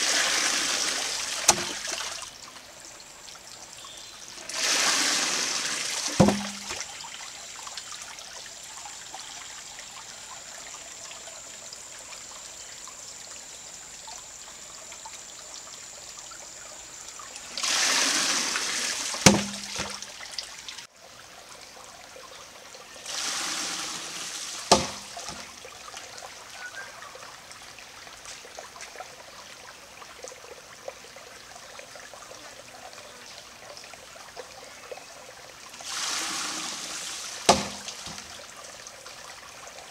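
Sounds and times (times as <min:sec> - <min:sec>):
water dumping from log: 0:00.0 - 0:02.3, 0:04.4 - 0:07.2, 0:17.4 - 0:20.4, 0:23.1 - 0:25.6, 0:35.8 - 0:38.5
creek trickling: 0:00.0 - 0:39.9.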